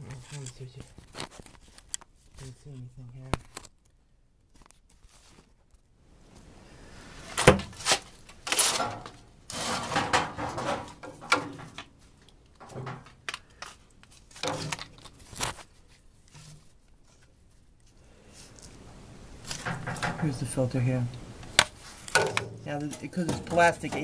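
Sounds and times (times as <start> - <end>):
metal rasping scrape: 7.8 - 11.3
sheet metal knocks and clunks: 8.8 - 11.8, 19.6 - 20.5, 22.2 - 24.0.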